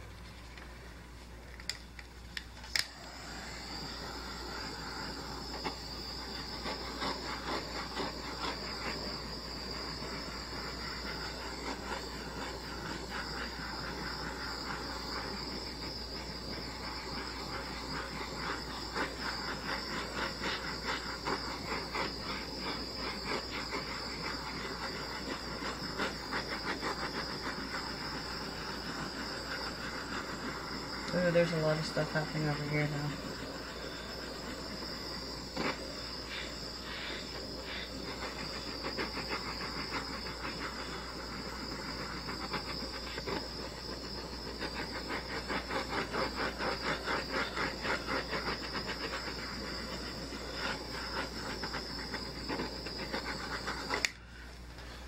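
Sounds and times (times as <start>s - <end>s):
torch flame hissing: 0.0s - 55.0s
torch igniter clicks: 1.4s - 3.2s, 54.0s - 54.2s.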